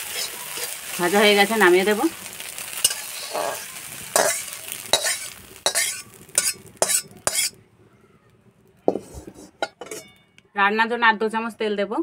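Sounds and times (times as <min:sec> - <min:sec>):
metal spatula scraping metal pan: 0:00.0 - 0:01.6, 0:02.7 - 0:07.6, 0:08.9 - 0:10.2.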